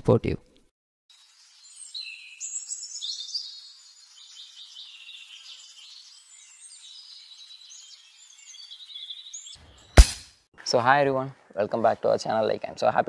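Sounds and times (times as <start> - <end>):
birds chirping and trilling: 1.1 - 10.0.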